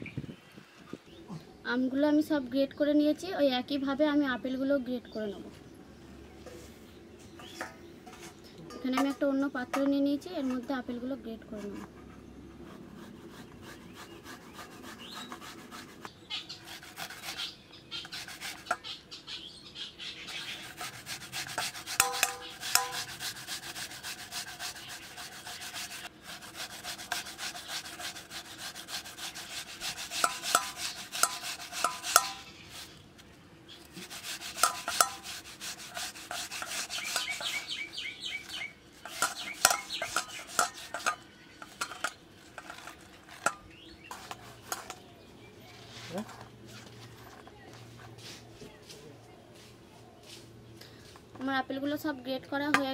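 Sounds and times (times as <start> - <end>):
apple rasping on grater: 12.6 - 19.0, 20.2 - 33.0, 33.8 - 44.9.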